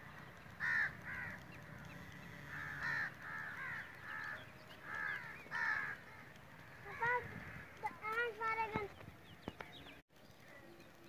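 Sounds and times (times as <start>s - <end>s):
birds calling: 0.0s - 11.0s.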